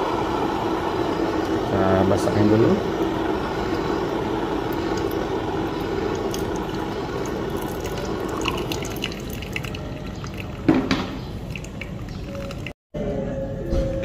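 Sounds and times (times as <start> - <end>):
water dripping through paper filter: 4.6 - 12.8.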